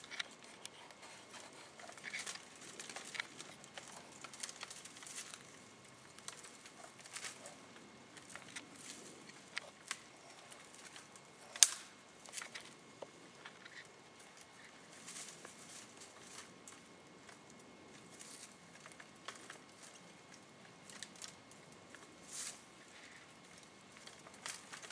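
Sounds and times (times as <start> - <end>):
rustling in dry leaves: 0.0 - 12.8, 13.4 - 24.9
sharp crack: 11.5 - 12.0.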